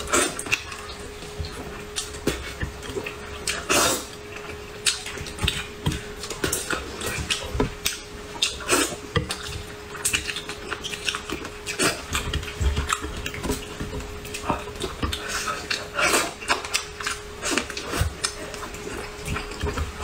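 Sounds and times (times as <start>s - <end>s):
wet chewing and lip smacks: 4.3s - 19.8s.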